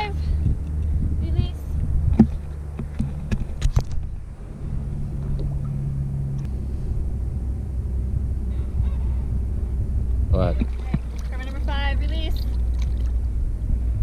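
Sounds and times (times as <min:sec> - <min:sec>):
low droning rumble: 0:00.0 - 0:14.0
water splashes: 0:10.4 - 0:13.4.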